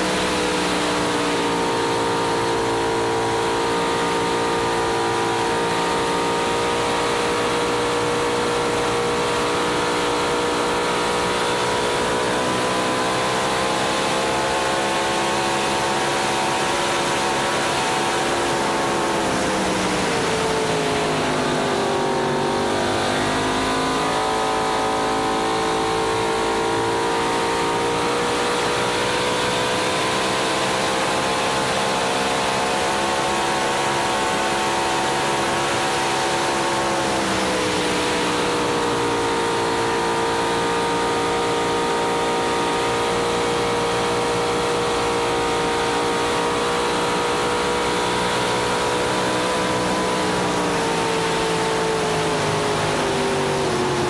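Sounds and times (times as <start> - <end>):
high-revving boat engine: 0.0 - 54.0.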